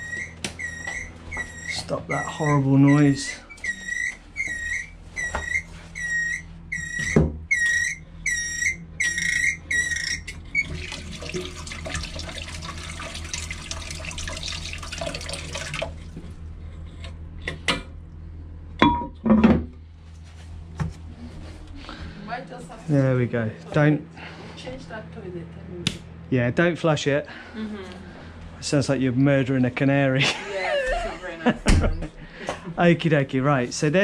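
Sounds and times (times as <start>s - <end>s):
toilet cistern squealing: 0.0s - 16.3s
water rushing: 10.6s - 16.2s.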